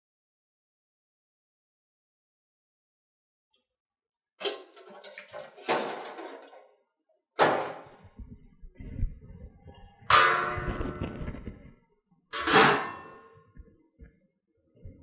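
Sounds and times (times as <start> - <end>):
steel lid clanging down: 4.4 - 6.6, 12.4 - 13.3
wire basket clanking on steel tank: 4.4 - 6.6, 12.4 - 13.2.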